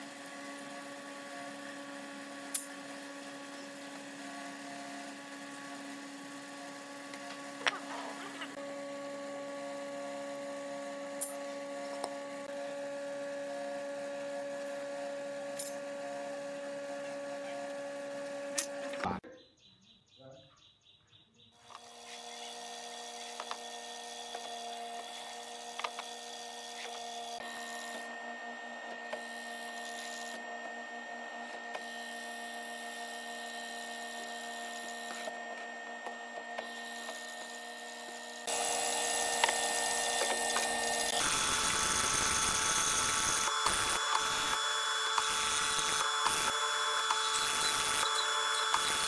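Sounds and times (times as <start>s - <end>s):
mortiser motor hum: 0.0s - 19.2s, 21.6s - 49.0s
chisel boring into wood: 21.6s - 28.1s, 31.4s - 49.0s.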